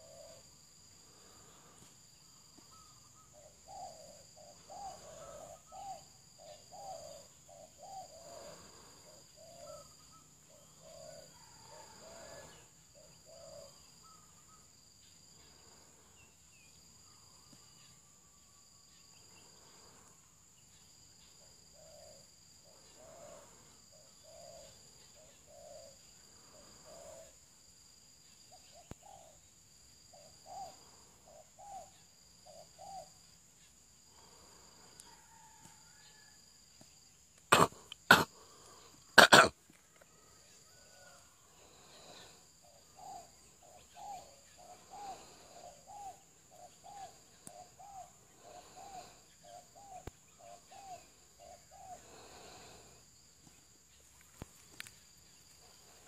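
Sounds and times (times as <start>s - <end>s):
dove cooing: 0.0s - 0.5s, 2.7s - 14.5s, 21.8s - 27.4s, 30.1s - 33.2s, 37.5s - 38.5s, 40.3s - 52.8s
insect drone: 0.0s - 56.0s.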